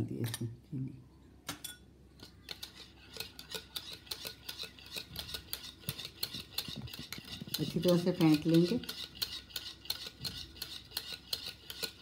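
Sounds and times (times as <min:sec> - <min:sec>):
whisk clicking against plastic bowl: 0:02.5 - 0:12.0.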